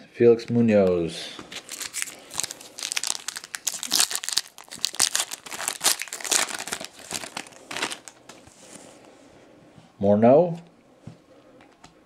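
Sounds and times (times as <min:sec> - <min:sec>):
foil wrapper crinkling and tearing: 0:01.5 - 0:08.2.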